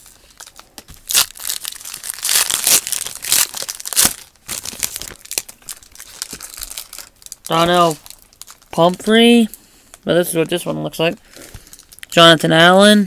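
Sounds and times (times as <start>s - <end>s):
foil wrapper crinkling and tearing: 0.0s - 9.2s, 9.9s - 12.2s.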